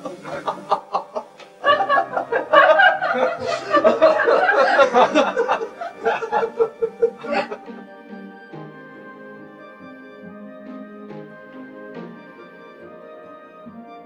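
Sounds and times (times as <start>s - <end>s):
people laughing: 0.0s - 7.9s
music: 0.0s - 14.0s.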